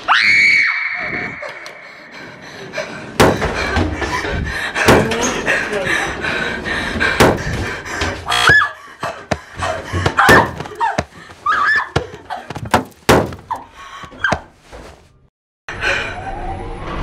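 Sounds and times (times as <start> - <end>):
hard thuds and bangs: 3.2 - 4.0, 4.8 - 5.2, 7.1 - 8.2, 9.3 - 11.4, 12.0 - 13.6
short high squeals: 8.3 - 8.8.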